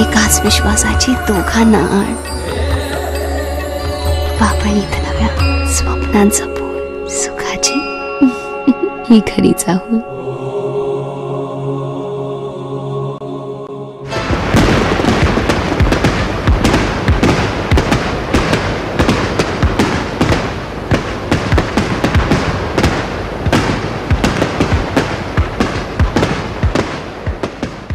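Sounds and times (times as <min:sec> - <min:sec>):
music: 0:00.0 - 0:27.9
firecrackers crackling and banging: 0:14.1 - 0:27.9.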